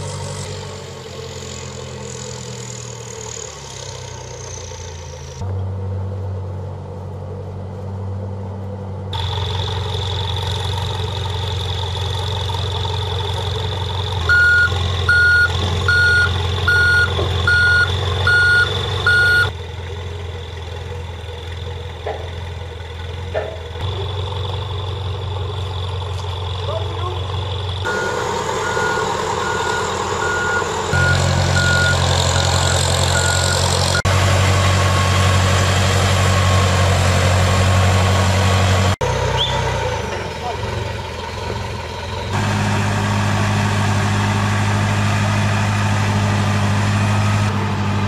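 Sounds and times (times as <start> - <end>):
tow tractor engine running: 0.0 - 48.0
reversing alarm beeping: 14.3 - 19.5, 27.9 - 34.1.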